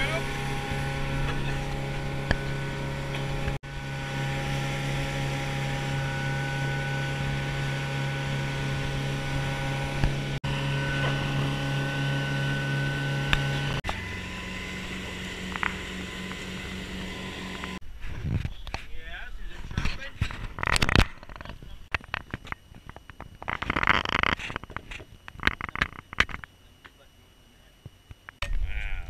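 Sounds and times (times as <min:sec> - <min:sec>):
motorboat engine droning: 0:00.0 - 0:17.8.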